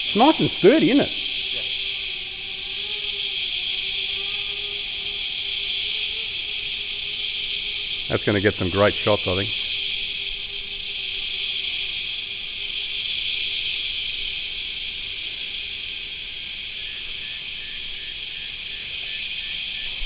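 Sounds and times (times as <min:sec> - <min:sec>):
insects buzzing chorus: 0:00.0 - 0:20.0.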